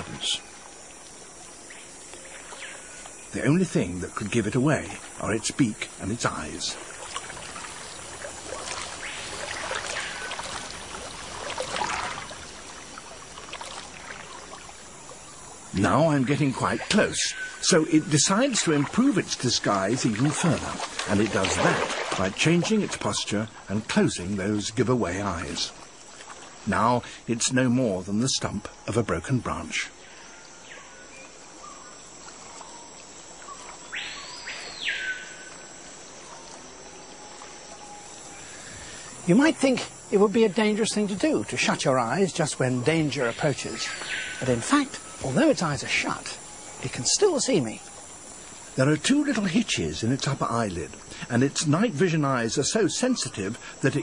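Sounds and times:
harsh insect buzz: 0:00.0 - 0:23.8
hissing forest ambience: 0:00.0 - 0:54.0
insects droning: 0:00.0 - 0:54.0.

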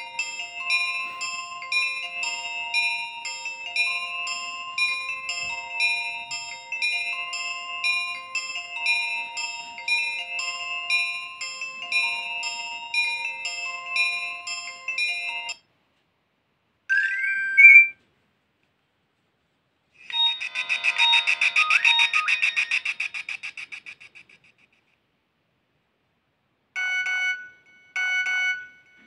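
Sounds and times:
phone alert tones: 0:16.9 - 0:18.0, 0:20.1 - 0:22.8
rising chirp: 0:16.9 - 0:18.0, 0:20.1 - 0:24.3
short beep phrases: 0:16.9 - 0:18.0
fast-pulsing warble: 0:20.1 - 0:24.3.

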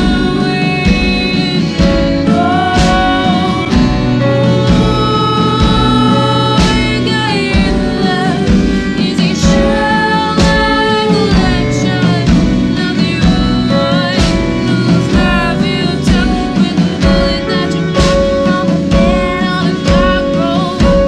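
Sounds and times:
drum strikes: 0:00.0 - 0:21.0
live band playing: 0:00.0 - 0:21.0
women singing: 0:00.0 - 0:21.0.

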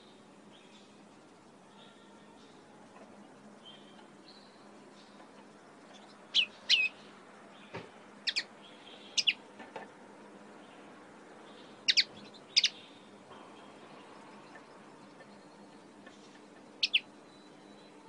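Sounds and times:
bird chirping: 0:05.8 - 0:09.4, 0:10.6 - 0:18.0.

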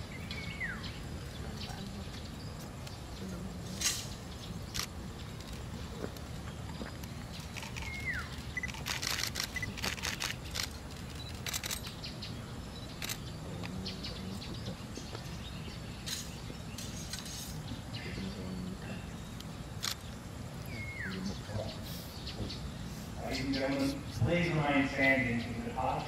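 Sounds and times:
birds calling: 0:00.0 - 0:26.0
sharp clicks: 0:04.7 - 0:05.6, 0:07.4 - 0:11.9.

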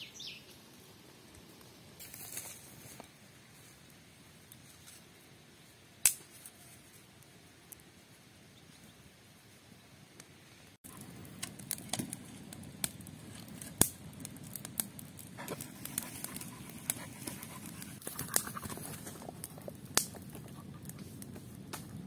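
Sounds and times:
campfire crackling: 0:00.0 - 0:22.0
sharp pops of fire: 0:06.0 - 0:06.7, 0:10.9 - 0:22.0.

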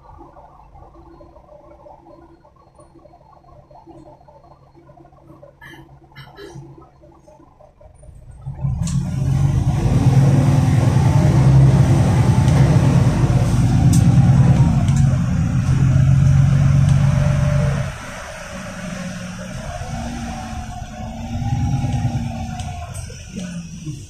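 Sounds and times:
bus engine deep drone: 0:00.0 - 0:24.0
road noise: 0:00.0 - 0:24.0.

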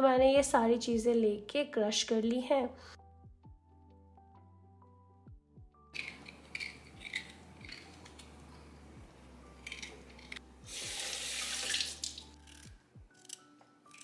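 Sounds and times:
soft background music: 0:00.0 - 0:14.0
knife scraping ginger: 0:06.0 - 0:08.3.

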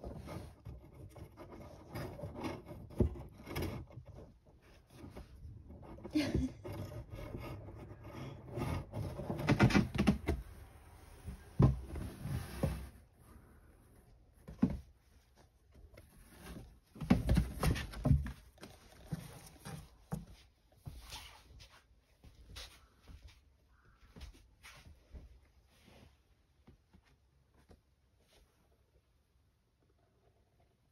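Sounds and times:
rustling and knocks on cardboard box: 0:11.2 - 0:13.0, 0:14.4 - 0:15.2, 0:16.0 - 0:21.1.

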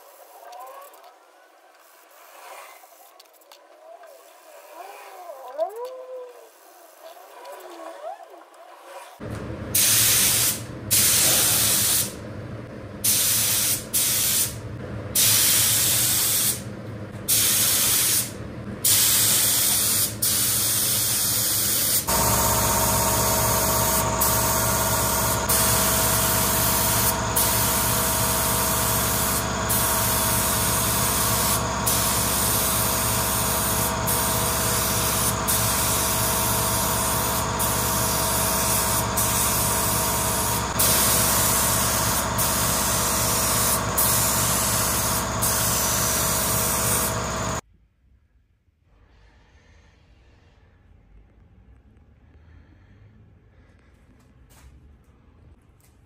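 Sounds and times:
air spray gun hissing: 0:09.8 - 0:12.2, 0:13.0 - 0:14.6, 0:15.2 - 0:16.6, 0:17.3 - 0:47.6
low motor hum: 0:22.1 - 0:47.6.

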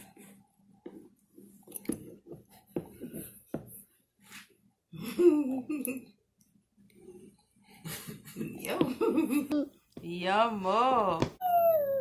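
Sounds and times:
toddler vocal sound: 0:11.4 - 0:12.0.

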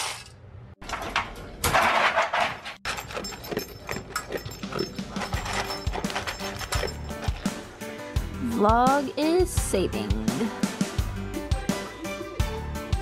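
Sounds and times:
dog crunching kibble: 0:02.9 - 0:07.6.

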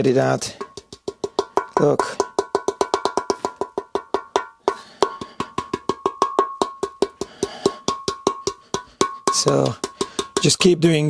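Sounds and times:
rust flakes rattling in metal tank: 0:08.6 - 0:11.0.

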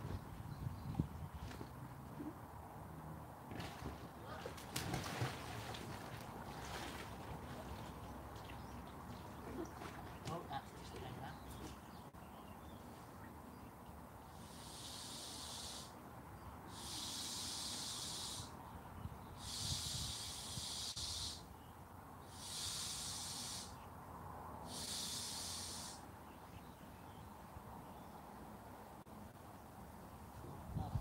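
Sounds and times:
air hissing through valve: 0:14.4 - 0:15.9, 0:16.7 - 0:18.5, 0:19.4 - 0:21.5, 0:22.3 - 0:23.7, 0:24.7 - 0:26.0.

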